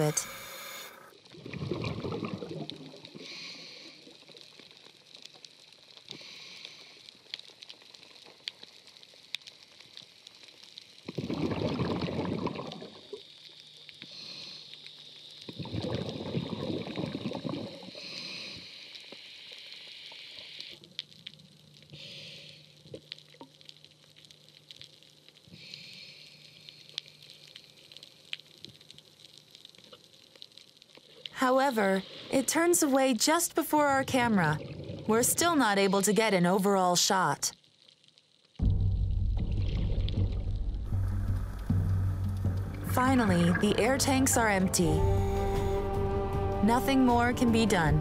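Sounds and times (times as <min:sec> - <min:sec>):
bubbling exhalations: 0:01.4 - 0:03.5, 0:11.1 - 0:13.2, 0:15.5 - 0:18.0.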